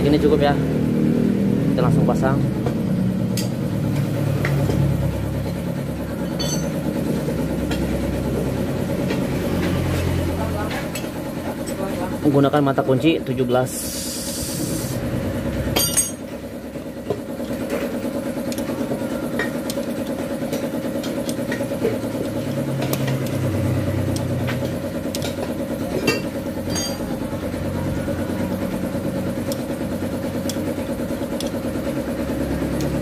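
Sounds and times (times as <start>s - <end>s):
small engine idling: 0.0s - 33.0s
spanner clicking on bolt: 18.5s - 18.7s, 19.4s - 22.0s, 24.1s - 25.6s, 29.4s - 29.7s, 30.4s - 31.7s.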